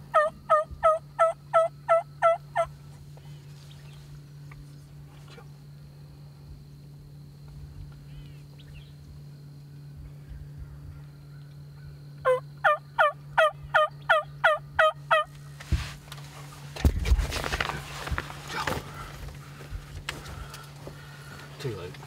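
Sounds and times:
turkey yelping: 0.1s - 2.7s, 12.2s - 15.3s.

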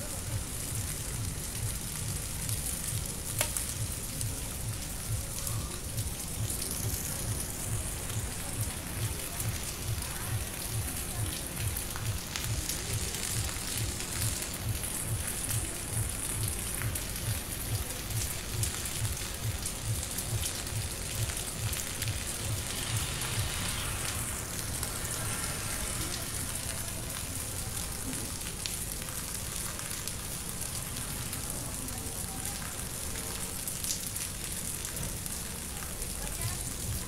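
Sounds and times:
rain on roofs and pavement: 0.0s - 37.0s.

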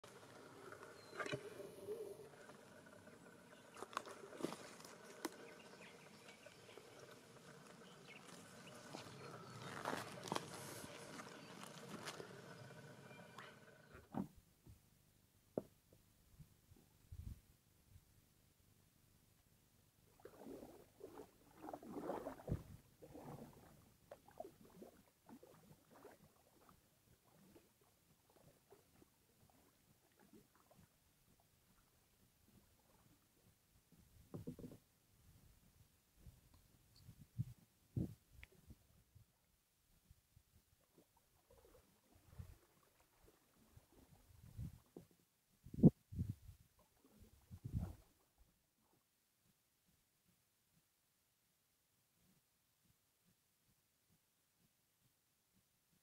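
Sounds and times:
paddle splashing water: 0.0s - 14.2s, 20.1s - 30.9s, 40.9s - 45.2s.

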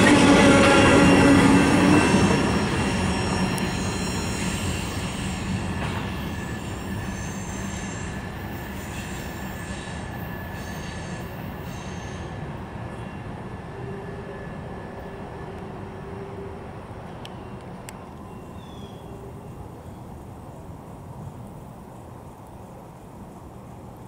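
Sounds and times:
wheel flanges squealing: 0.0s - 12.4s
train wheels rumbling on rails: 0.0s - 16.0s.

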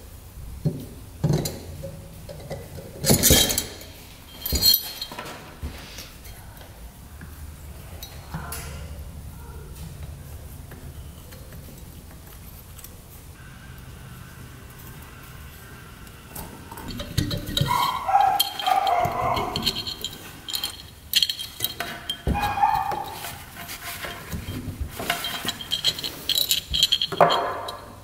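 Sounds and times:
metal parts clinking: 2.3s - 5.4s, 16.7s - 28.0s
chain rattling: 2.4s - 5.5s, 16.7s - 28.0s
squeaky metal scrapes: 13.4s - 28.0s.

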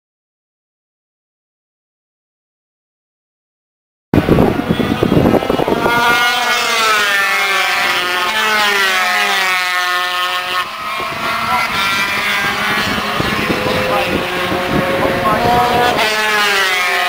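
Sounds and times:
racing motorcycles passing: 4.2s - 17.0s.

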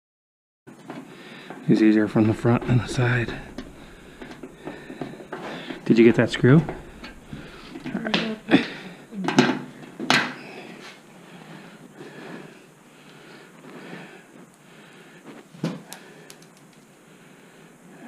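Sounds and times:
low metallic clatter: 2.0s - 9.1s.

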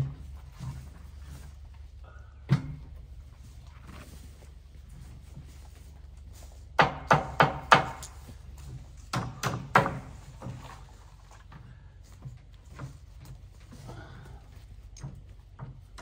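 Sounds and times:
hammer striking boards: 6.8s - 8.2s, 9.1s - 10.2s.

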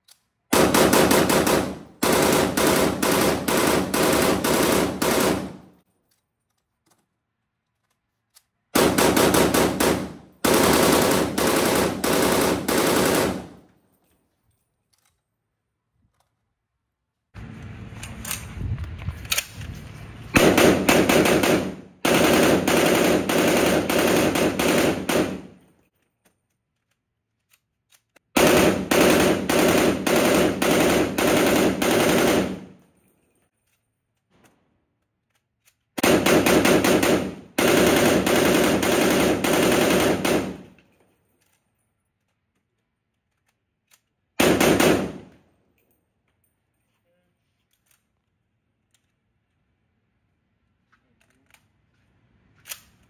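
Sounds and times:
rifle firing rapid bursts: 0.5s - 5.7s, 8.8s - 13.6s, 20.4s - 25.6s, 28.4s - 32.8s, 36.0s - 40.7s, 44.4s - 45.3s.

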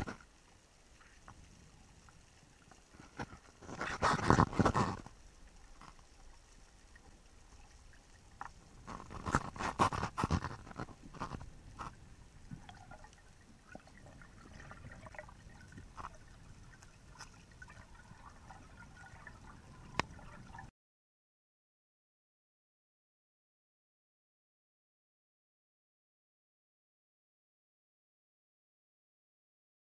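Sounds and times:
faint crackling: 0.0s - 20.7s
underwater water movement and bubbling: 0.0s - 20.7s.

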